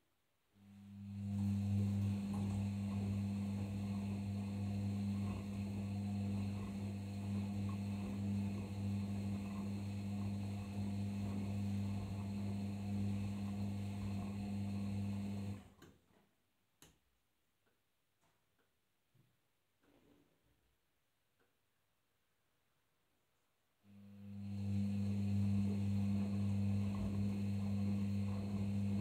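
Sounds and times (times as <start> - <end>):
washing machine drain pump: 0.6 - 15.8, 23.9 - 29.0
click: 2.0 - 3.1, 15.4 - 16.0, 16.8 - 17.0, 21.4 - 21.6.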